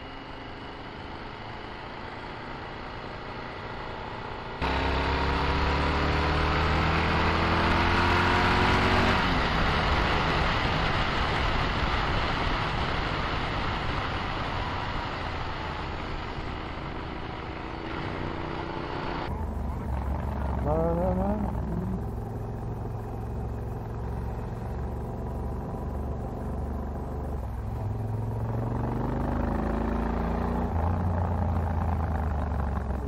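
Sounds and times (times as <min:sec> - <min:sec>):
motorcycle engine accelerating: 0:00.0 - 0:33.0
wind noise: 0:07.0 - 0:18.5.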